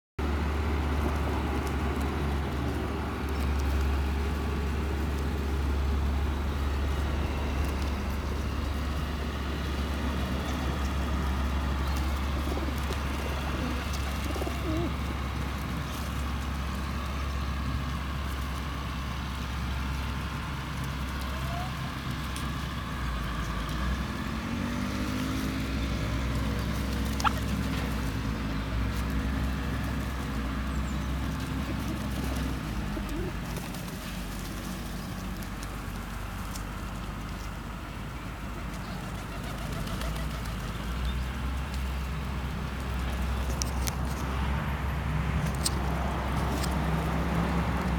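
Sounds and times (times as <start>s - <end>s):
pigeons cooing: 6.8s - 16.9s, 25.7s - 35.2s.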